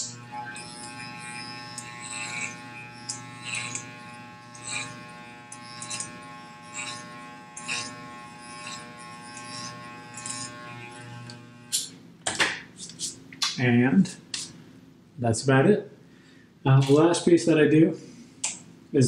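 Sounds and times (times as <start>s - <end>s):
blades rasping through hair: 0.0s - 11.9s
electric hair clipper buzzing: 0.0s - 11.9s.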